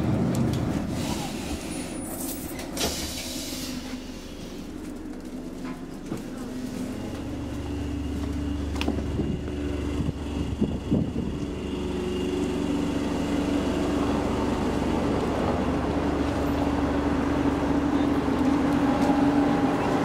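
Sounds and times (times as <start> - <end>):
electric train humming: 0.0 - 20.0
knocks and footsteps: 4.4 - 11.6, 14.6 - 20.0.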